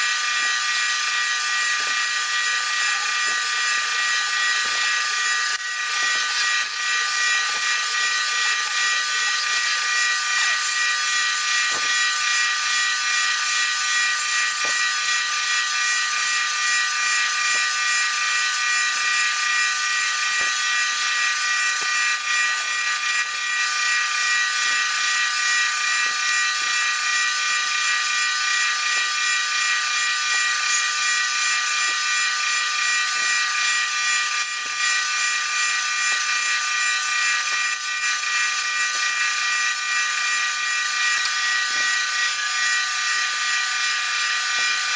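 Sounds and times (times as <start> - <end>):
wood lathe hiss and whine: 0.0 - 16.8.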